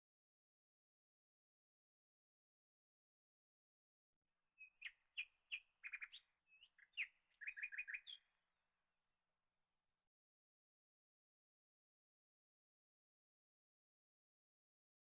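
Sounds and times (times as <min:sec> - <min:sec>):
small bird chirping: 0:04.6 - 0:08.3.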